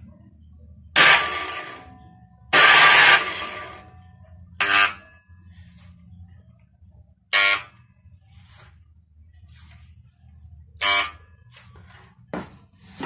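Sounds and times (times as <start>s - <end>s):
faint low hum: 0.0s - 13.0s
circular saw motor buzzing: 1.0s - 5.1s, 7.3s - 7.8s, 10.8s - 11.2s.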